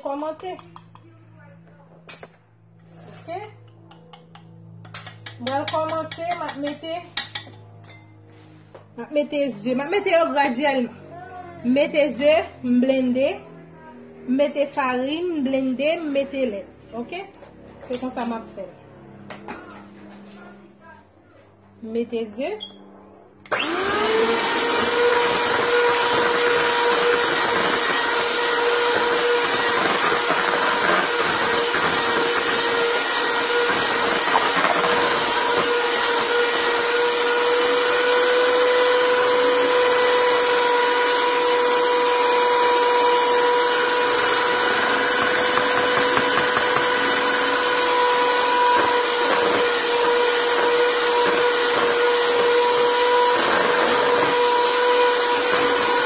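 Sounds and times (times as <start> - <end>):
electric hand mixer whining: 23.4 - 56.0.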